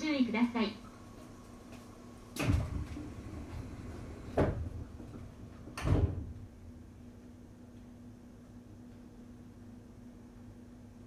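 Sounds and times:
low steady hum: 0:00.0 - 0:11.0
train doors thumping shut: 0:02.4 - 0:06.4.

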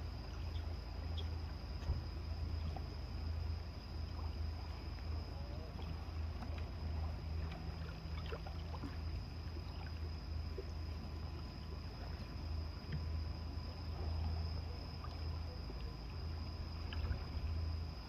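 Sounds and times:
low engine hum: 0:00.0 - 0:18.0
faint ticks: 0:12.8 - 0:13.3.

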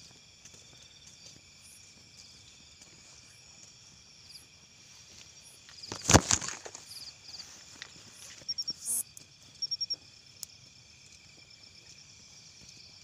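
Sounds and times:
crickets trilling: 0:00.0 - 0:13.0
short high insect chirp: 0:08.2 - 0:10.0.

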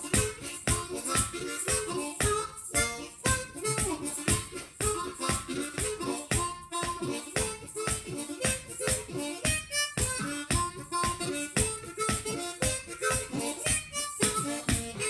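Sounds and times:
blues harmonica playing: 0:00.0 - 0:15.0.

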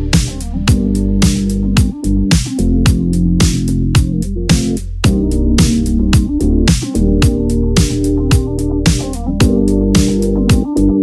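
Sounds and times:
electronic music with steady beat: 0:00.0 - 0:11.0.

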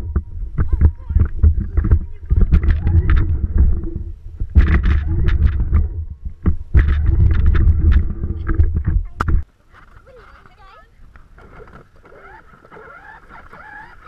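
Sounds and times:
plastic body rattling and knocking: 0:00.0 - 0:09.4
toy vehicle rumbling over grass: 0:00.0 - 0:14.0.

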